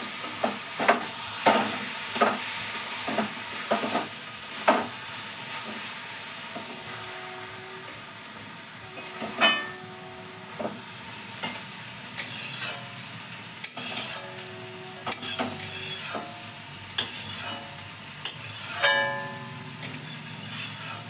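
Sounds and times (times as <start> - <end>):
food sizzling in hot oil: 0.0 - 21.0
metal spatula scraping metal pan: 8.9 - 10.3, 12.2 - 13.0, 13.6 - 16.4, 17.0 - 21.0.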